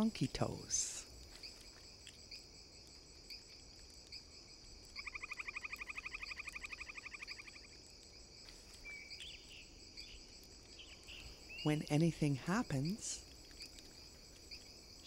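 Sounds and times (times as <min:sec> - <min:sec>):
insect chorus: 0:00.0 - 0:15.0
loud rapid insect trill: 0:00.0 - 0:15.0
soft chirps: 0:04.9 - 0:07.8.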